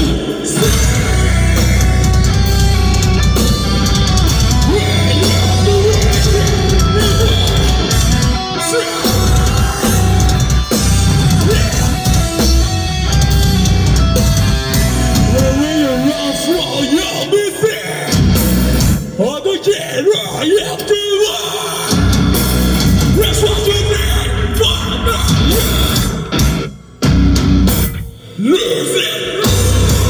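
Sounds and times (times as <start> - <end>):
metal band playing live: 0.0 - 30.0.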